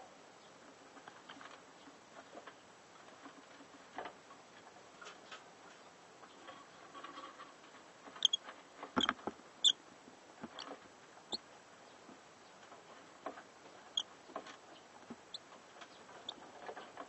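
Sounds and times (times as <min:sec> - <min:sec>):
chicks squeaking: 0:08.2 - 0:08.4, 0:09.0 - 0:09.8, 0:10.5 - 0:11.4, 0:14.7 - 0:17.0.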